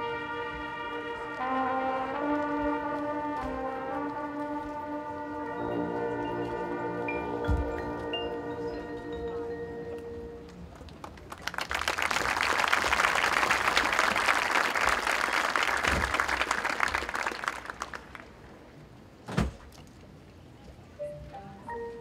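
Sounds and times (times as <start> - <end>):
crowd applauding: 10.7 - 18.4.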